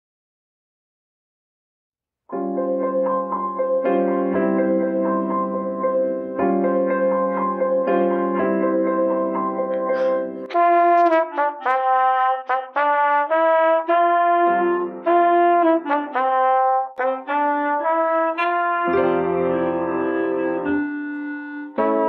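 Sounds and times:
clarinet and brass duet: 10.0 - 22.0.

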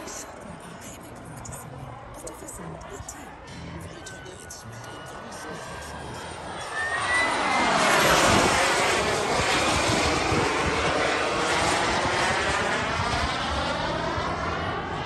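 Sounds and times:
model jet turbines roaring: 4.9 - 15.0.

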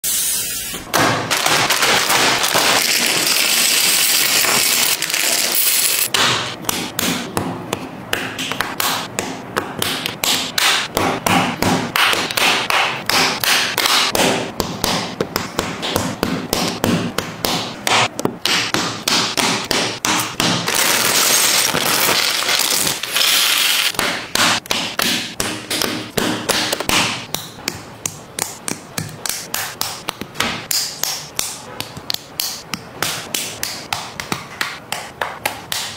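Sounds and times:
plastic bags rustling: 20.7 - 23.9.

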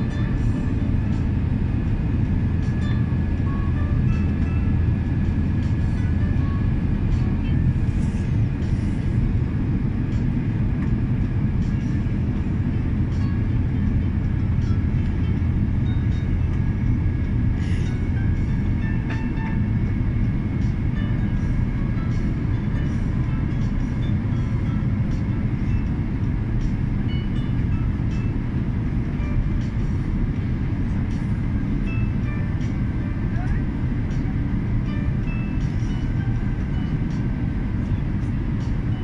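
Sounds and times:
jet engines and rushing air: 0.0 - 39.0.

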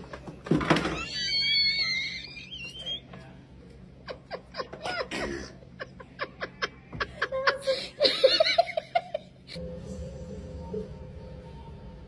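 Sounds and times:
woman laughing: 4.0 - 9.6.

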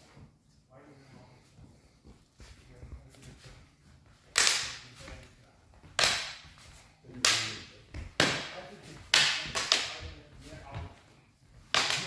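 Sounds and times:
sabres clashing with echo: 4.3 - 5.0, 6.0 - 6.6, 7.2 - 10.0, 11.7 - 12.0.

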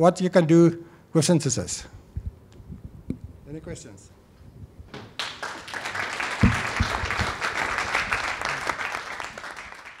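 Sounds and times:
audience applauding: 5.2 - 10.0
low thumps: 6.4 - 7.4.

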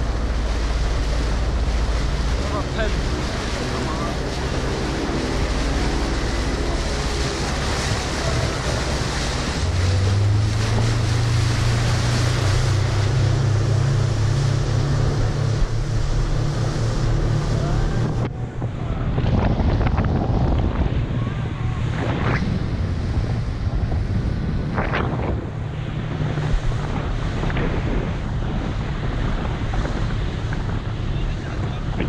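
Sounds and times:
motorboat engine drone: 0.0 - 32.0
rushing water: 0.0 - 32.0
wind noise on microphone: 0.0 - 32.0.

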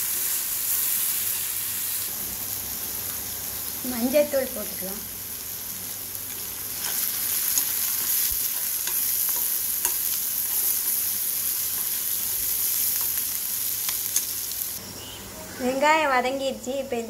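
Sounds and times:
onions sizzling in hot oil: 0.0 - 15.0
metal spoon scraping a pan: 6.8 - 11.1.

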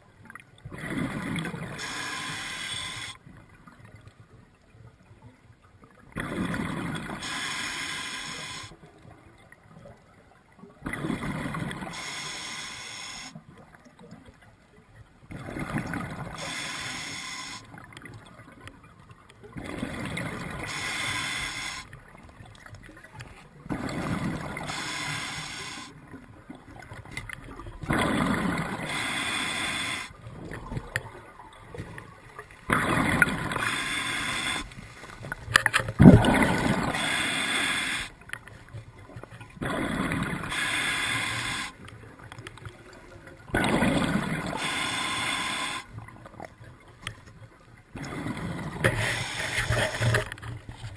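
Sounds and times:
scuba regulator breathing bubbles: 0.7 - 3.2, 6.2 - 8.8, 10.9 - 13.4, 15.5 - 17.7, 19.6 - 21.9, 23.7 - 26.0, 27.9 - 30.6, 32.7 - 35.1, 36.0 - 38.2, 39.6 - 41.8, 43.6 - 46.0, 48.0 - 50.4.

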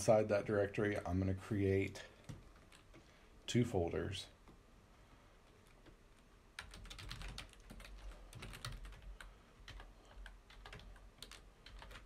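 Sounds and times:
typing on computer keyboard: 6.6 - 12.0.

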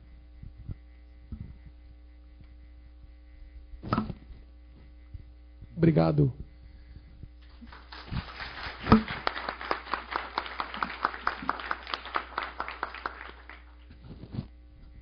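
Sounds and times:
audience applauding: 7.5 - 13.9.

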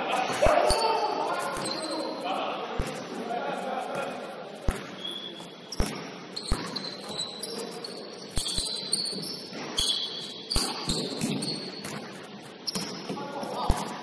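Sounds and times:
sneakers squeaking on floor: 0.1 - 2.2, 4.0 - 14.0
basketball bouncing on court: 2.8 - 3.1, 4.6 - 7.7, 8.4 - 14.0.

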